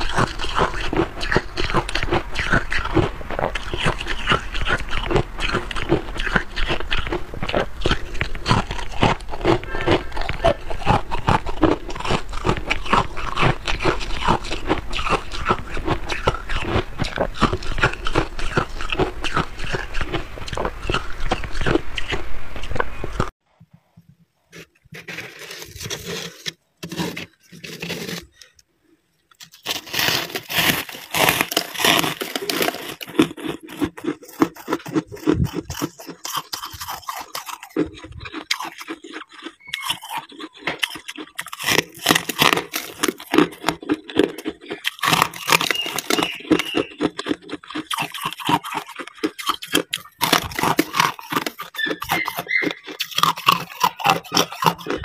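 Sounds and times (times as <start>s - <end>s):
frost crunching and scraping: 0.0s - 23.4s, 24.4s - 28.6s, 29.3s - 55.0s.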